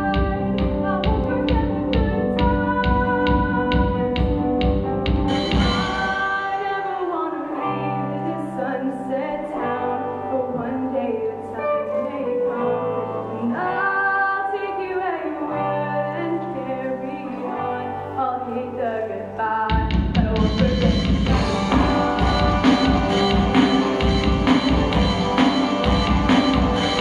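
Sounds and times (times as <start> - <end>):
woman singing: 0.0 - 4.3, 5.6 - 23.9
electric guitar chords: 0.0 - 18.2, 19.9 - 27.0
bass guitar notes: 20.5 - 27.0.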